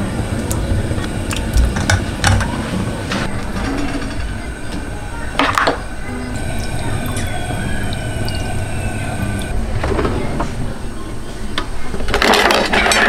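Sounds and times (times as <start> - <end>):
steady hum: 2.8 - 9.8.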